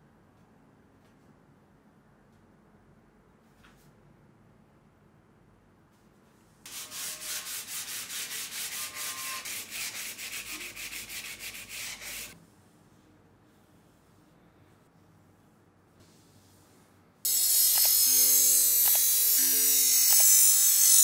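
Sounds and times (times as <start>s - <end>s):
sanding metal blade rasping: 6.7s - 12.4s.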